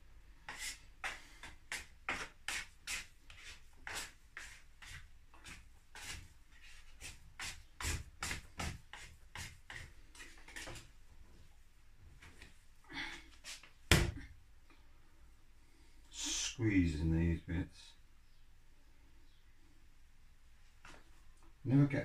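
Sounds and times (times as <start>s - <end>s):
dough scraper scraping worktop: 0.5s - 10.9s.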